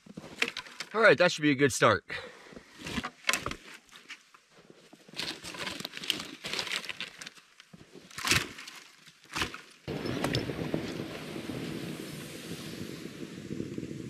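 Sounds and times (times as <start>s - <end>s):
dead branches rustling and scraping: 0.0s - 1.1s, 2.6s - 11.6s
sharp cracks and knocks: 5.2s - 11.0s.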